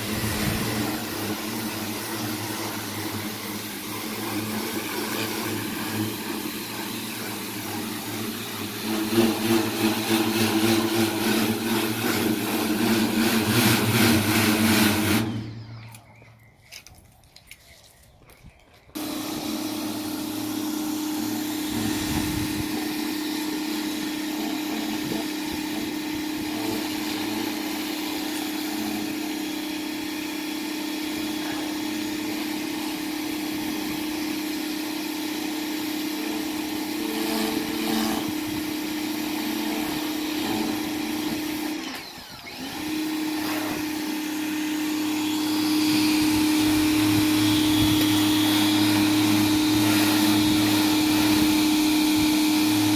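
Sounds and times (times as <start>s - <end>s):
pressure washer spraying: 0.0s - 15.6s, 19.0s - 52.9s.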